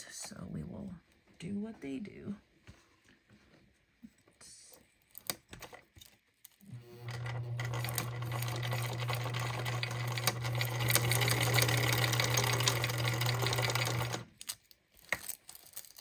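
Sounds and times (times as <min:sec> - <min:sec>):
electric sewing machine stitching: 0:06.6 - 0:14.3.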